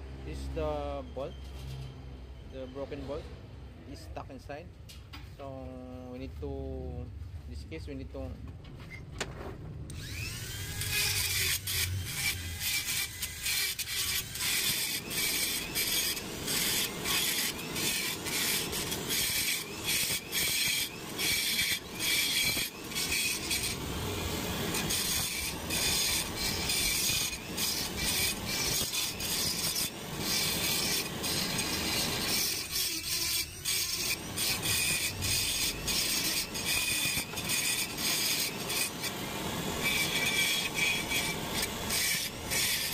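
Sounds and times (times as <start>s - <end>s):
rotary tool grinding metal: 9.9s - 42.9s.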